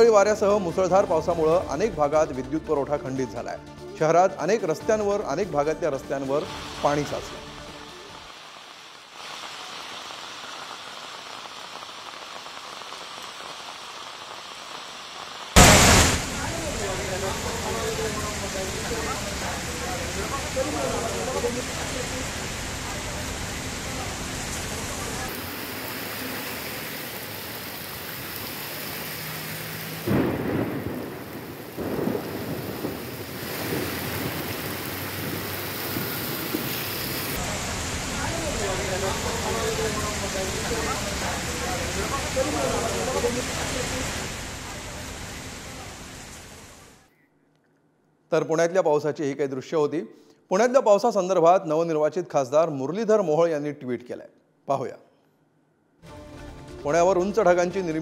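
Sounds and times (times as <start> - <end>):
heavy rain on standing water: 6.2 - 47.1
sudden loud rumbles: 15.6 - 20.2.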